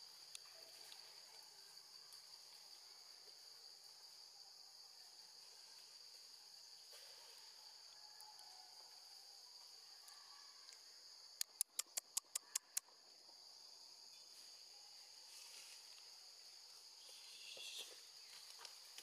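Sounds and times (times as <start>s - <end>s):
high-pitched insect chorus: 0.0s - 19.0s
sharp clicks: 11.4s - 12.9s.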